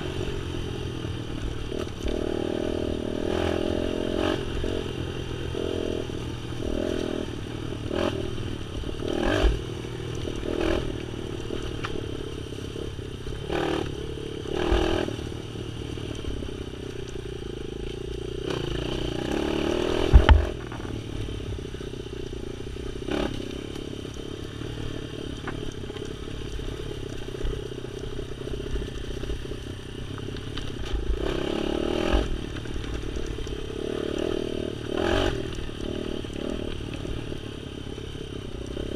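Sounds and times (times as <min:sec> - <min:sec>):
motorcycle engine revving: 0:00.0 - 0:38.9
bike clattering over bumps: 0:19.9 - 0:21.0
loud thump: 0:20.0 - 0:20.9.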